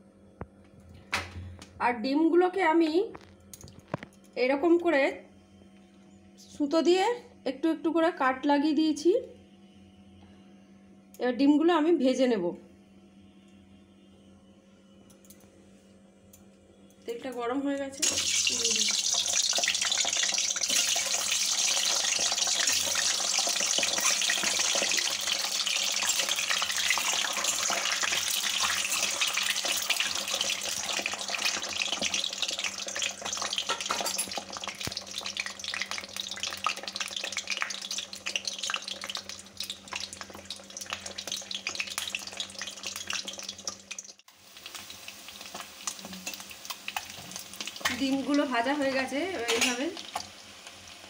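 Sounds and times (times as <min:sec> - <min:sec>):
eggs sizzling in hot oil: 0:18.0 - 0:51.0.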